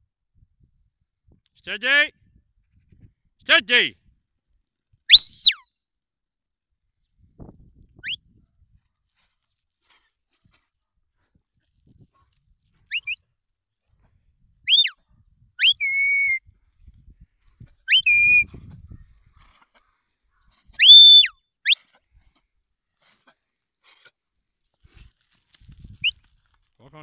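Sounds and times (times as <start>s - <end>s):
shepherd's whistles: 5.1s - 5.6s, 12.9s - 13.2s, 14.7s - 15.0s, 15.6s - 16.4s, 17.9s - 18.5s, 20.8s - 21.8s.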